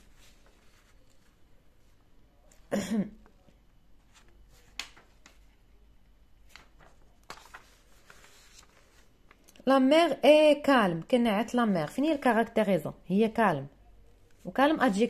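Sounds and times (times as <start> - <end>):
paper being handled: 0.0 - 2.0, 6.5 - 9.5.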